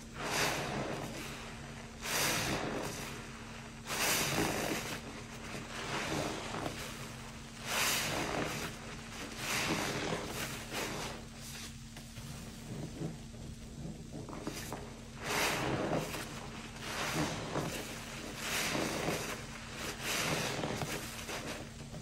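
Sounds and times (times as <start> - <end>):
wet sponge squelching: 0.0 - 22.0.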